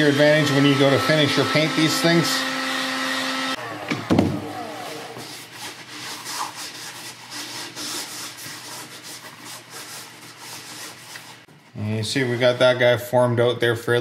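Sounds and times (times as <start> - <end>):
heat gun fan winding down: 0.0 - 5.2
heat gun knocking on workbench: 3.9 - 4.4
foam rubbing and handling: 5.1 - 13.0.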